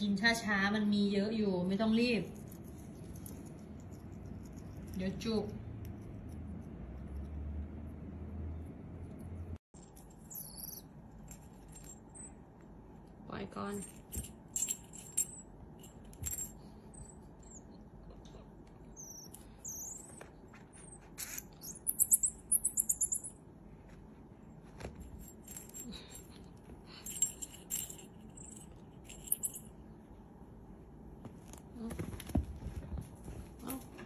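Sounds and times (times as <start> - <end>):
jingle bell jingling: 9.8 - 12.4, 13.5 - 17.8, 20.8 - 23.4, 25.0 - 29.8
marmoset chirps: 10.2 - 11.0, 18.8 - 20.2, 20.8 - 23.2
marmoset whistles: 19.0 - 20.2.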